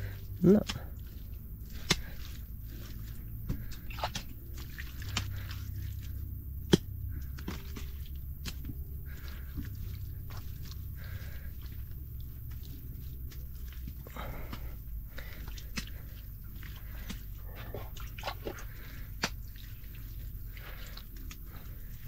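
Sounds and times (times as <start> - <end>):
wet mud squishing and slapping: 0.0 - 22.0.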